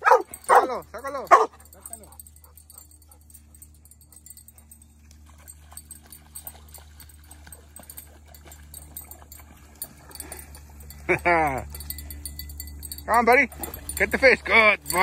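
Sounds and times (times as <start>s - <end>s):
dog splashing in shallow water: 5.0s - 11.2s.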